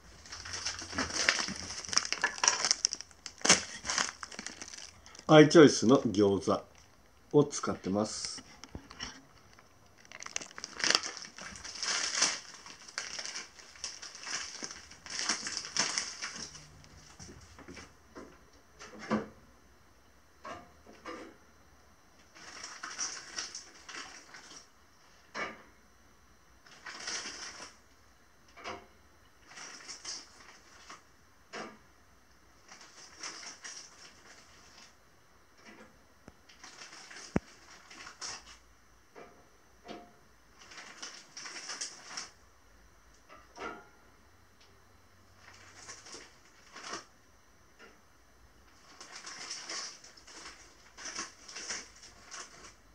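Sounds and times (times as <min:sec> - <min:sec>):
plastic bag crinkling: 0:00.0 - 0:17.4, 0:22.4 - 0:24.7, 0:26.7 - 0:27.8, 0:29.4 - 0:31.0, 0:32.7 - 0:34.9, 0:36.5 - 0:38.6, 0:40.6 - 0:42.4, 0:45.4 - 0:47.1, 0:48.7 - 0:52.8.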